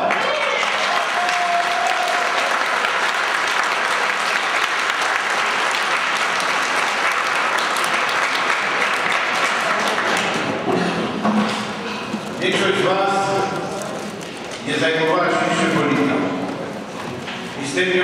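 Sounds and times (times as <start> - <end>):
audience applauding: 0.0 - 11.2.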